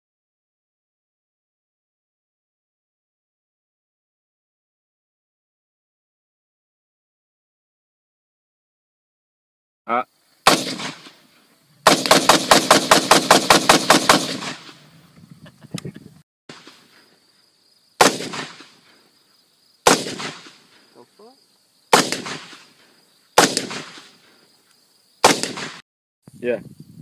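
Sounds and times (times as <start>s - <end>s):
rifle shots: 10.4s - 11.2s, 11.8s - 14.9s, 18.0s - 18.9s, 19.8s - 20.8s, 21.9s - 22.8s, 23.4s - 24.3s, 25.2s - 25.8s.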